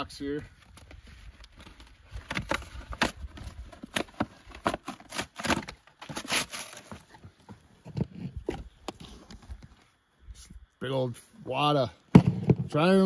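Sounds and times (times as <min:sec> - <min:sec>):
rustling: 0:00.5 - 0:10.0.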